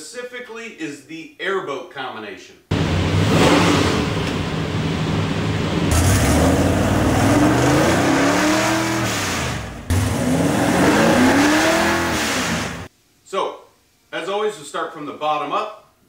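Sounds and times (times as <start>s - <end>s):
car engine revving: 2.7s - 12.9s.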